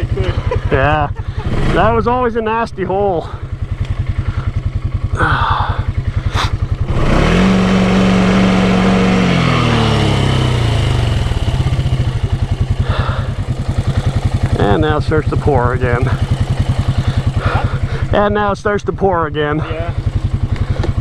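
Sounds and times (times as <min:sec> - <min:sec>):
atv engine idling and revving: 0:00.0 - 0:21.0.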